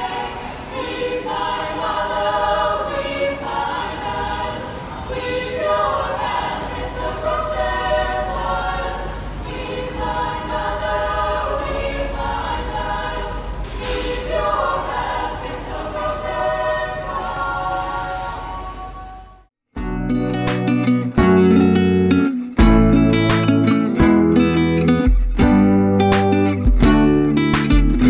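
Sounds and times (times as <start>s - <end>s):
choir singing held notes: 0.0s - 19.5s.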